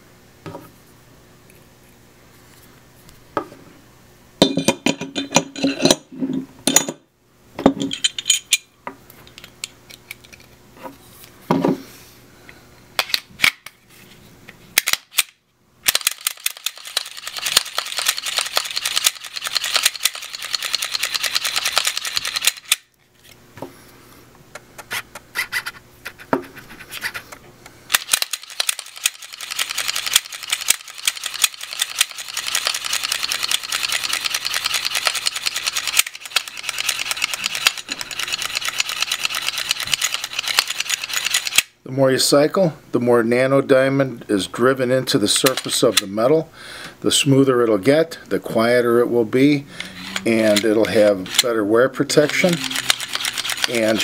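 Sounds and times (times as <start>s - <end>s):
pistol parts clicking: 14.8s - 23.0s, 27.9s - 41.7s, 50.2s - 54.0s
pistol slide rasping metal: 15.9s - 22.8s, 27.9s - 41.6s, 49.8s - 54.0s.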